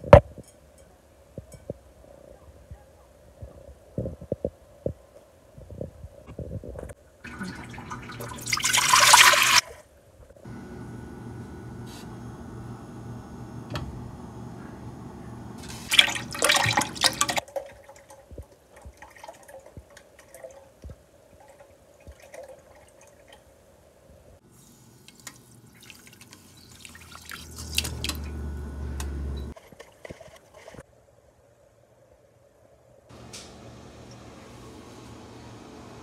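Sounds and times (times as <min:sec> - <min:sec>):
liquid pouring and splashing into pot: 0:07.2 - 0:09.8, 0:15.6 - 0:20.8, 0:21.4 - 0:23.4, 0:25.0 - 0:28.2
steady low hum: 0:10.4 - 0:16.2.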